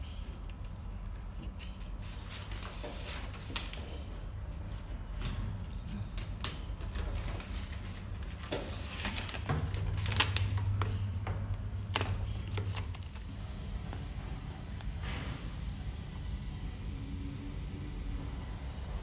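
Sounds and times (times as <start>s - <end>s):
foil duct crinkling: 0.5s - 5.2s, 5.8s - 13.3s.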